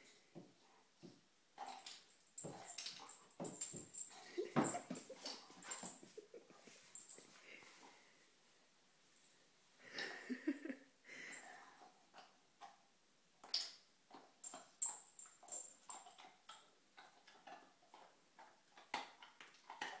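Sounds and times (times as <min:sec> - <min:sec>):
puppy gnawing a treat: 0:13.4 - 0:20.0.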